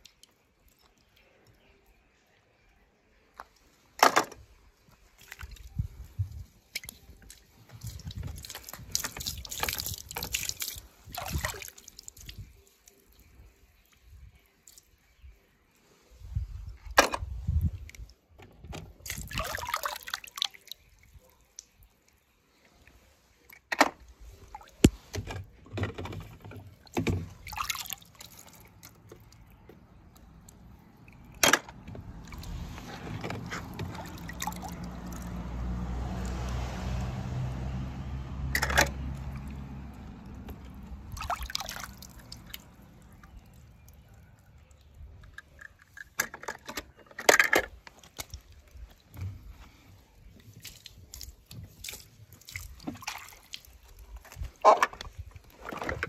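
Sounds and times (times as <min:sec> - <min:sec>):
water sloshing and dripping: 0:00.0 - 0:02.3, 0:03.1 - 0:56.0
water rushing and pouring: 0:07.8 - 0:12.5, 0:32.1 - 0:44.1.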